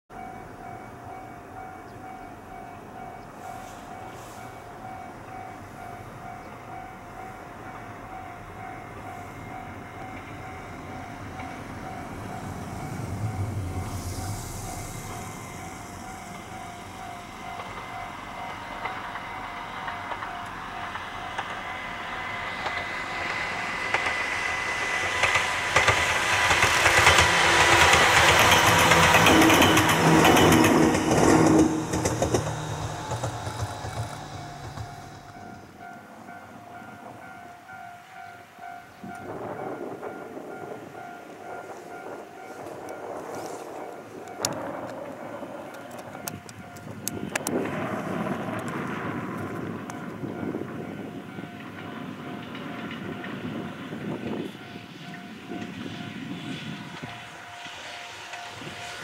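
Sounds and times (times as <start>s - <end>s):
distant level-crossing alarm: 0.1s - 59.0s
electric train running: 0.2s - 59.0s
wheel clicks over rail joints: 25.1s - 35.5s.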